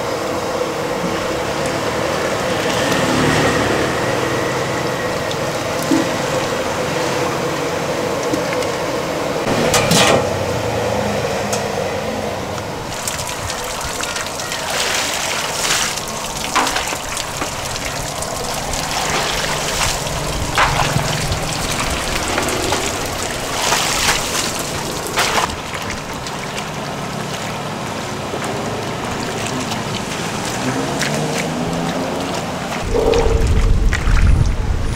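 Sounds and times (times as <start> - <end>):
water splashing in a basin: 12.9 - 34.7.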